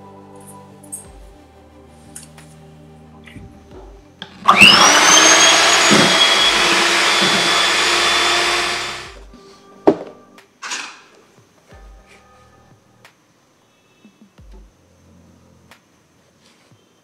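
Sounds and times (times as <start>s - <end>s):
electric hand mixer whirring: 4.4s - 9.2s.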